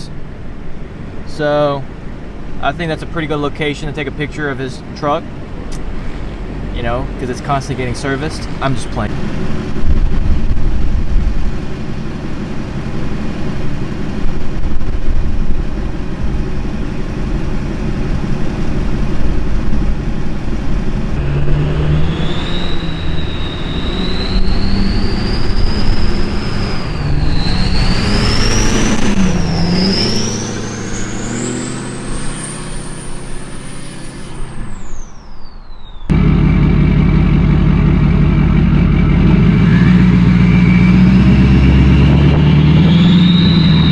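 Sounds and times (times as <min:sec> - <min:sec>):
engine and road drone: 0:00.0 - 0:43.9
turbo whistle: 0:21.2 - 0:36.1, 0:39.6 - 0:43.9.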